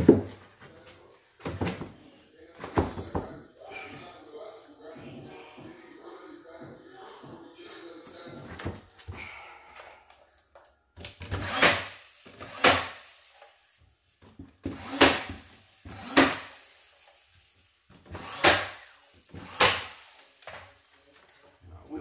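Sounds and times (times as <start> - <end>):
nail gun firing into wood: 11.2 - 13.1, 14.7 - 16.6, 18.1 - 20.6.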